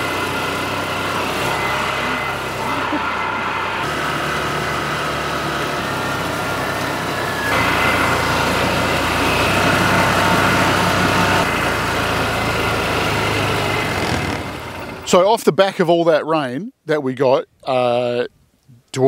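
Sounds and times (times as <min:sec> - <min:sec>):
vehicle engine running with whine: 0:00.0 - 0:15.2.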